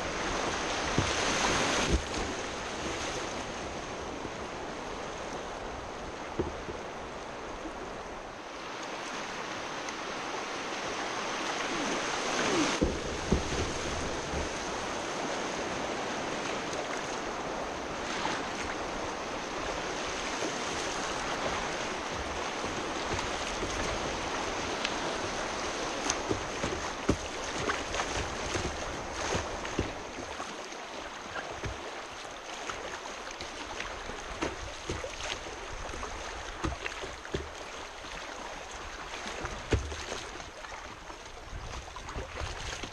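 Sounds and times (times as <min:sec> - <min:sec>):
river rapids rushing: 0:05.6 - 0:39.7
knocks on kayak: 0:06.3 - 0:06.8, 0:12.8 - 0:14.6, 0:26.1 - 0:30.0, 0:39.5 - 0:40.1
sharp water splashes: 0:20.3 - 0:41.0.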